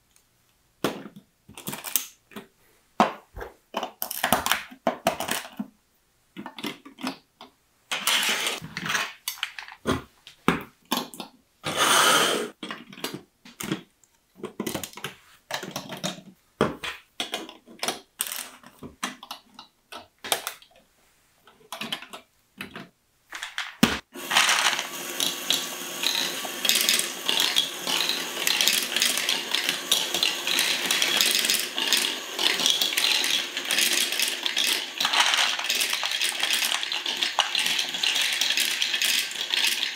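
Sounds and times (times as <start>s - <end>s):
plastic balls rattling down tracks: 7.9s - 9.8s, 23.3s - 39.9s
plastic bricks clicking: 21.6s - 39.9s.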